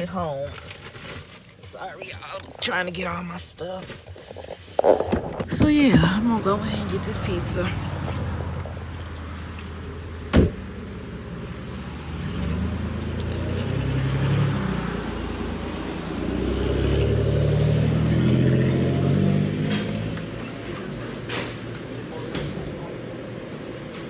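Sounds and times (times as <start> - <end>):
cars passing by: 1.8 - 24.0
car door shutting: 10.3 - 10.6.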